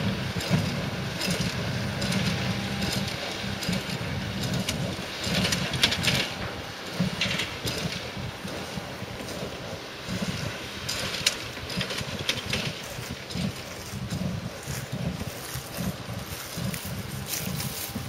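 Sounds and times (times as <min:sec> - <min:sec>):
diesel tractor engine running: 0:00.0 - 0:18.0
baler mechanism rattling: 0:10.1 - 0:18.0.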